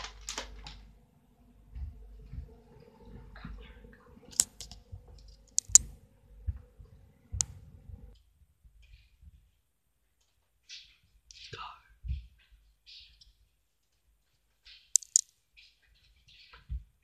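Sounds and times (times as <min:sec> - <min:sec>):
faint steady hum: 0:00.0 - 0:09.5
sharp clicks and knocks: 0:04.3 - 0:06.0, 0:14.9 - 0:15.3.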